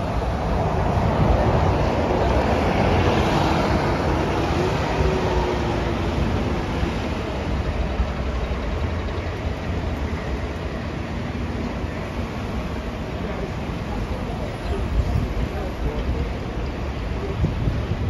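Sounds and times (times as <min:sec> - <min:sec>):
bus engine rumble: 0:00.0 - 0:18.0
street traffic: 0:00.0 - 0:18.0.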